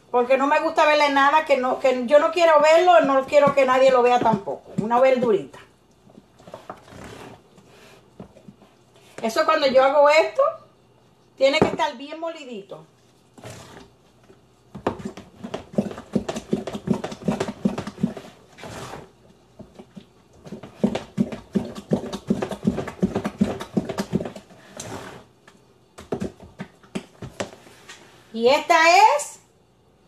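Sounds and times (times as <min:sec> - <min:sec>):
hands squeezing wet dough: 0:12.9 - 0:27.8.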